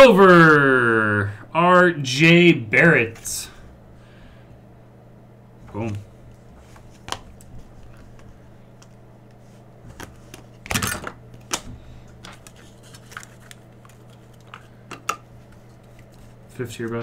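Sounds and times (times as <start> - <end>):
low electrical hum: 0.0 - 17.0
cards being flipped: 6.6 - 10.7, 11.4 - 17.0.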